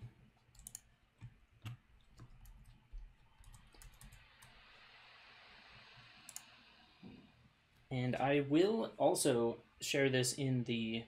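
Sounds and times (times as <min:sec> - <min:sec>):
computer mouse clicks: 0:00.0 - 0:04.8, 0:05.9 - 0:06.6.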